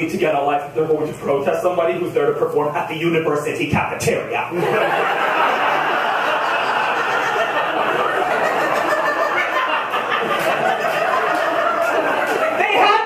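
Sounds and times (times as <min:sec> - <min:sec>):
audience laughing: 0:04.5 - 0:13.0.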